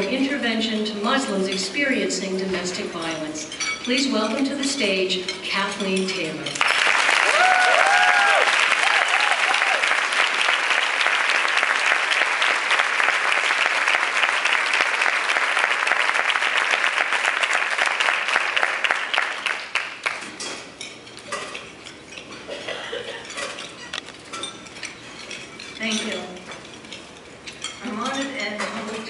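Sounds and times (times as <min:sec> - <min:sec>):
cutlery and dishes clinking: 0:02.6 - 0:06.8, 0:19.5 - 0:29.0
audience applauding: 0:06.6 - 0:20.3.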